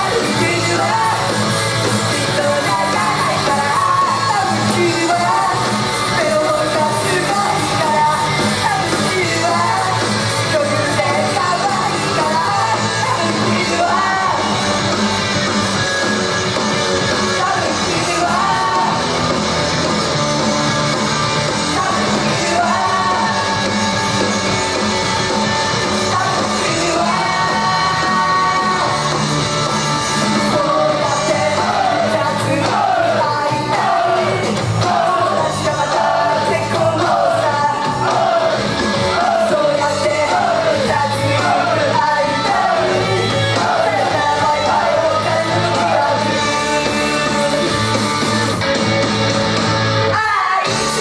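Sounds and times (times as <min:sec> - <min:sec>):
women singing into microphones: 0:00.0 - 0:01.4, 0:02.0 - 0:14.6, 0:17.3 - 0:19.1, 0:21.6 - 0:23.8, 0:25.9 - 0:29.4, 0:30.2 - 0:47.8
loud rock music: 0:00.0 - 0:51.0.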